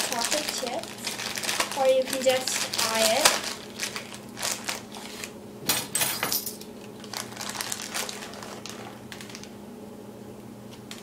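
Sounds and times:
plastic bag crinkling: 0.0 - 5.4, 6.8 - 9.6
metal measuring spoons clattering: 5.7 - 6.6.

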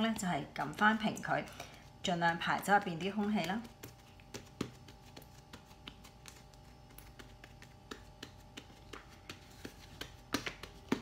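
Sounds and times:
hands tapping dough: 0.0 - 11.0.

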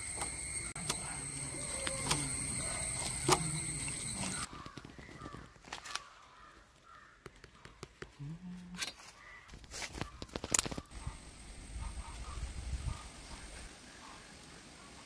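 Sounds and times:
birds cawing: 0.0 - 7.3, 9.0 - 11.2.

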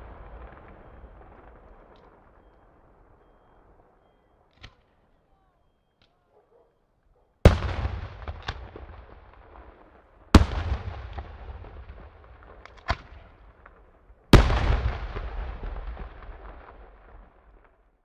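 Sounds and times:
fireworks bangs: 0.0 - 5.0, 7.5 - 17.8
rolling echo rumble: 0.0 - 5.1.

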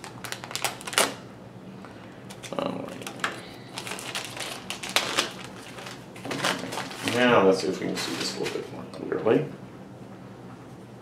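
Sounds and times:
plastic wrapping crinkling: 0.0 - 1.2, 2.3 - 7.4.

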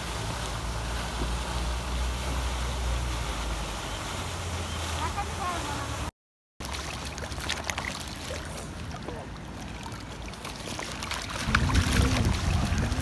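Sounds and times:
wind buffeting microphone: 11.4 - 13.0.

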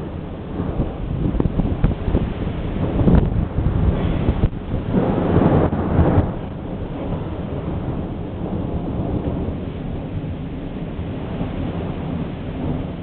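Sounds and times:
distant thunder rumbling: 0.0 - 13.0.

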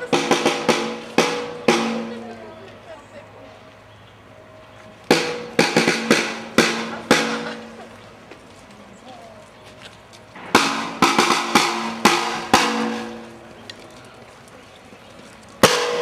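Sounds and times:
snare drum strokes: 0.0 - 2.2, 5.1 - 7.8, 10.4 - 13.4, 15.6 - 16.0.

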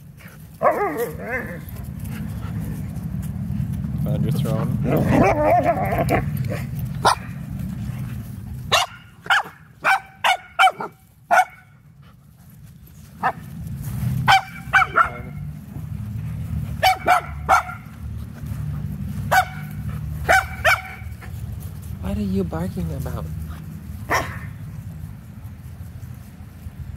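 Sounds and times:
dog barking high-pitched: 0.6 - 1.4, 5.1 - 7.3, 8.7 - 11.7, 14.3 - 15.4, 16.8 - 17.9, 19.3 - 21.1, 24.1 - 24.5.

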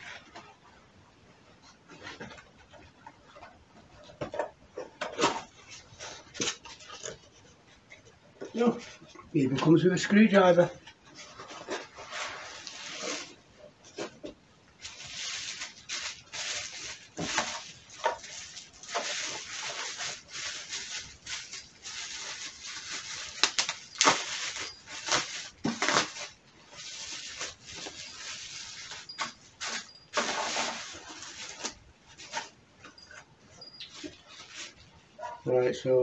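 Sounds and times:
bubble wrap crinkling: 5.0 - 7.5, 8.5 - 35.3
bubble wrap cracks: 14.8 - 32.5.

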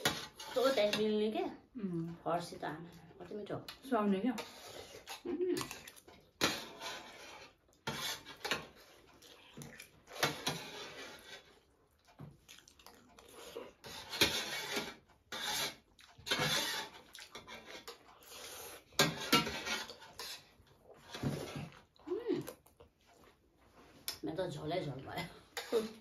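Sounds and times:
spoons scraping metal plates: 0.0 - 1.4, 3.7 - 9.0, 10.0 - 11.6, 13.7 - 21.8, 25.4 - 26.0
chewing: 8.7 - 10.1, 11.4 - 13.8, 15.8 - 16.3, 16.9 - 19.0, 19.9 - 24.2.

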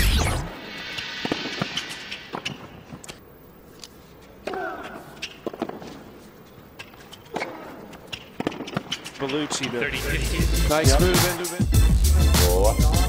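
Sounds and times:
shoe squeal on court: 0.7 - 3.0, 4.8 - 9.7
tennis ball hits and bounces: 5.2 - 6.1, 6.8 - 9.7.

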